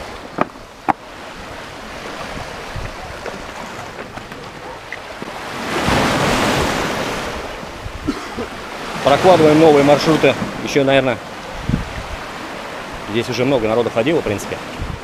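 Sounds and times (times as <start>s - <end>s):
stones knocking underfoot: 0.3s - 1.0s.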